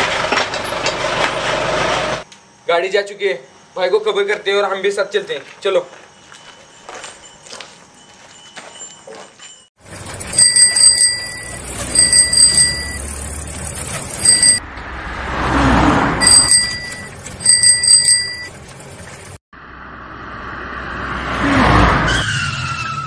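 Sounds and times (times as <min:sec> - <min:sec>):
van engine rumbling: 0:00.0 - 0:02.2, 0:09.8 - 0:15.3, 0:15.9 - 0:20.3
high ringing tone: 0:05.8 - 0:14.6, 0:16.2 - 0:19.3.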